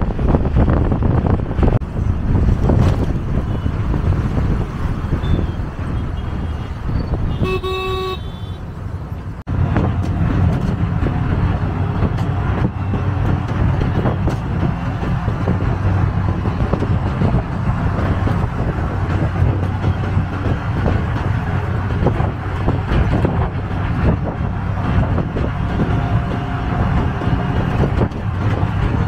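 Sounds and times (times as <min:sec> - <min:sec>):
engine and road rumble: 0:00.0 - 0:29.0
vehicle horn toot: 0:05.2 - 0:08.6.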